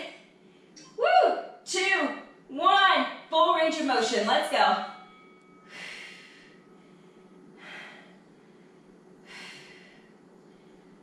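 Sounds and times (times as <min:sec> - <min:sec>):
woman breathing hard: 0:05.6 - 0:11.0.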